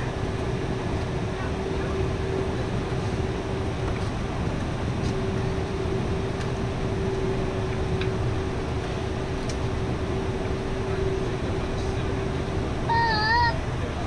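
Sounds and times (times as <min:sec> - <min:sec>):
airplane engines rushing: 0:00.0 - 0:14.0.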